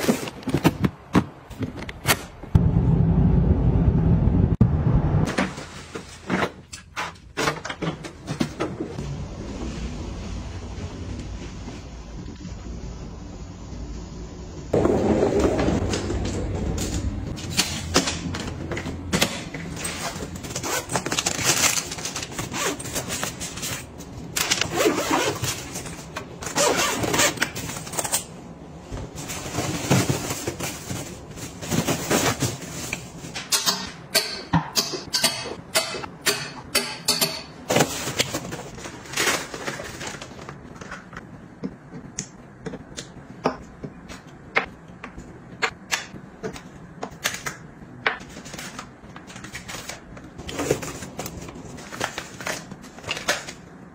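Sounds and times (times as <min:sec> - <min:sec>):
low rumbling: 0:02.5 - 0:05.3, 0:09.0 - 0:17.5.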